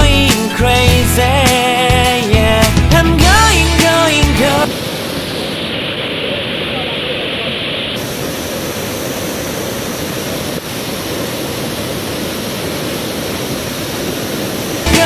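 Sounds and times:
waterfall rushing: 3.2s - 15.0s.

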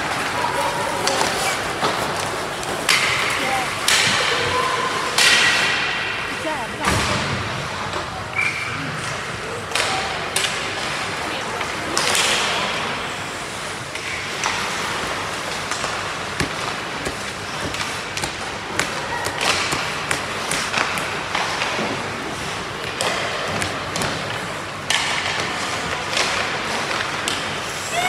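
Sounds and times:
hockey sticks clacking on puck: 0.0s - 6.2s, 8.4s - 13.0s, 13.9s - 27.9s
puck hitting boards: 1.0s - 6.1s, 14.0s - 22.1s, 22.8s - 27.6s.

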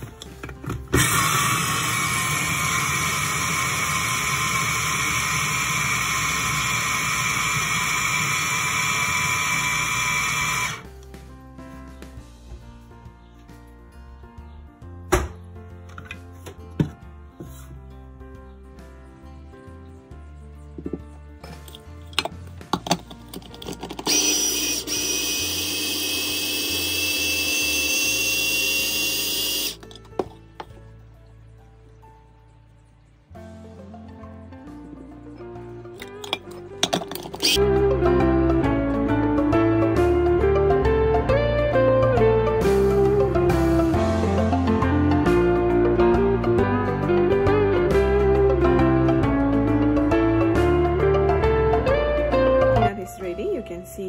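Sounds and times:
food processor motor whining: 0.0s - 10.9s, 24.0s - 29.8s, 37.4s - 37.6s.

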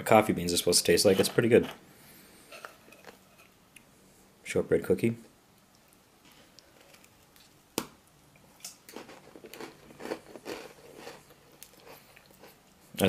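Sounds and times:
cookie snapping: 6.6s - 12.5s
crunchy chewing: 8.6s - 13.0s.

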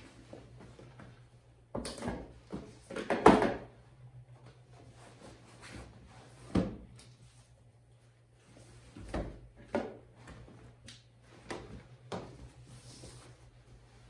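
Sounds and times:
household knocks and bumps: 1.7s - 3.7s.

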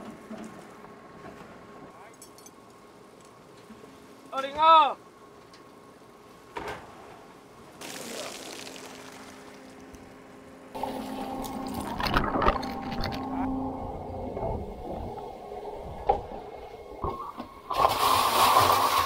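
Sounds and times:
low steady hum: 0.0s - 19.0s
water splashing and streaming: 7.8s - 10.0s, 10.7s - 13.4s, 16.9s - 19.0s.

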